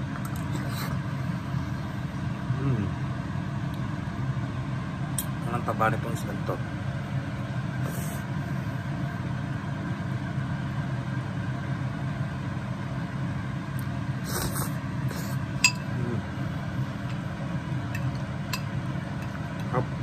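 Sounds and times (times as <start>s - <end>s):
steady low hum: 0.0s - 20.0s
metal spoon clinking on dish: 15.6s - 15.9s.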